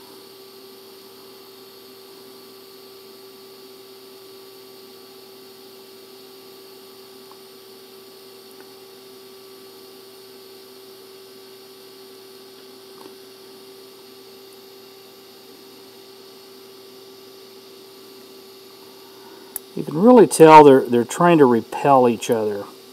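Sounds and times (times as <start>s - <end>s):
welding arc hissing: 18.8s - 22.7s.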